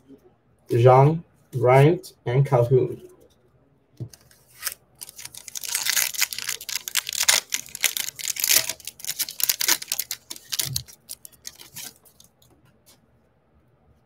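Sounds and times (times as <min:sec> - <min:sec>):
foil wrapper tearing and crinkling: 0:04.2 - 0:12.2.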